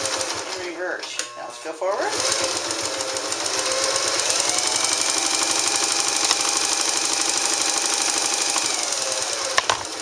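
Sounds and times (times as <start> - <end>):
sewing machine motor whirring: 2.1 - 10.0.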